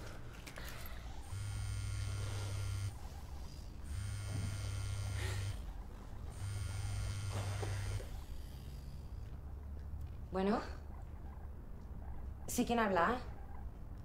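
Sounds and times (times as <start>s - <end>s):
phone vibrating on wooden table: 1.1s - 3.1s, 3.8s - 5.7s, 6.3s - 8.8s.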